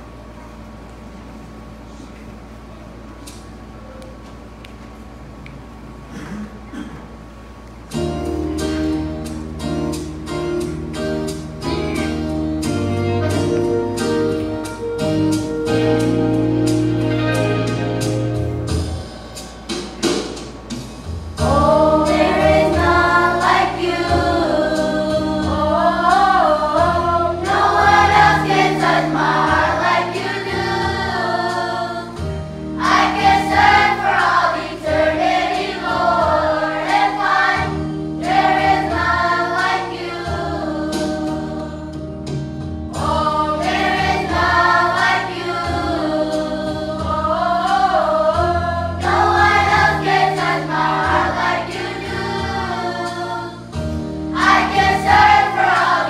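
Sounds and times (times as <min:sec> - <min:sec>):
children's choir singing a hymn: 0:21.4 - 0:56.0.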